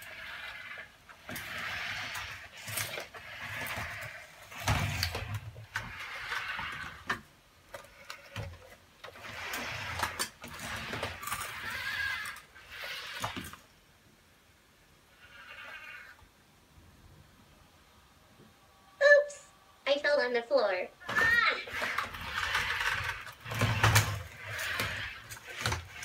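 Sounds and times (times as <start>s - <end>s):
robot joint motors whirring: 0.0s - 13.6s, 15.2s - 16.2s, 21.0s - 26.0s.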